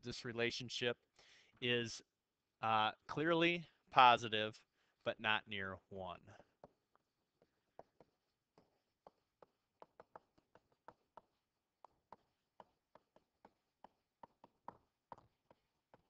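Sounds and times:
stylus tapping tablet screen: 0:06.3 - 0:16.0.

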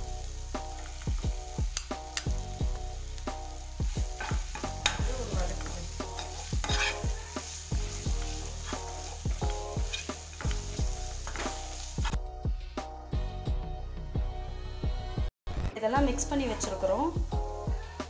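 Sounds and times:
food sizzling in hot oil: 0:00.0 - 0:12.2, 0:16.1 - 0:18.0
metal skimmer scraping pan: 0:06.0 - 0:07.2.

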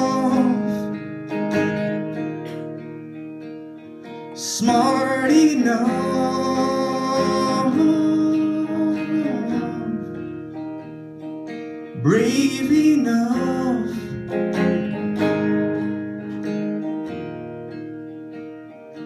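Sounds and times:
man singing: 0:00.0 - 0:01.1, 0:04.4 - 0:10.5, 0:11.9 - 0:14.6
electric guitar chords: 0:00.0 - 0:19.0.

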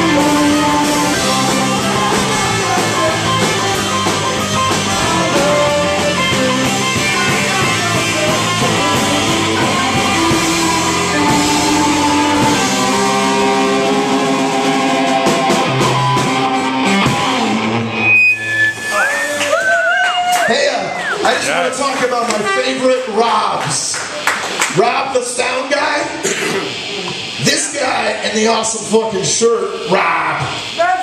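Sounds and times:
saxophone: 0:00.0 - 0:20.1
live rock band playing: 0:00.0 - 0:29.9.

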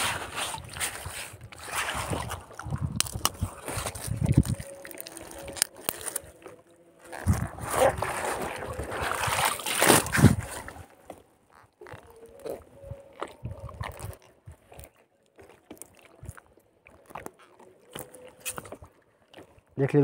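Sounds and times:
net mesh and plastic bag rustling: 0:00.0 - 0:10.9
water trickling and sloshing: 0:00.0 - 0:20.0.

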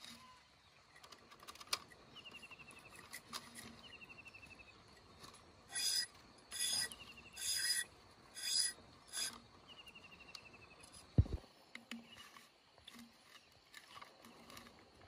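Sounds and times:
bamboo strips rasping: 0:01.0 - 0:09.7, 0:10.8 - 0:15.0
dull low thump: 0:11.2 - 0:11.4.

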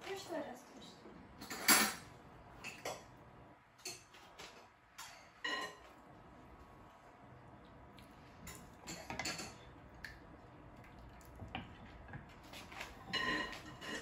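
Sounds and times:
dishes and utensils clattering: 0:01.4 - 0:03.1, 0:03.8 - 0:06.0, 0:08.4 - 0:09.7, 0:11.5 - 0:14.0.

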